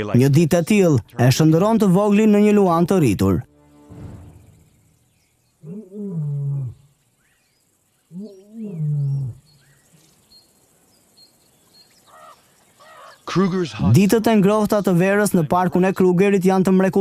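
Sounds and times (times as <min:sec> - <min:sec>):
faint bird chirps: 0:04.1 - 0:15.5
lion roaring: 0:05.6 - 0:06.9, 0:08.1 - 0:09.5.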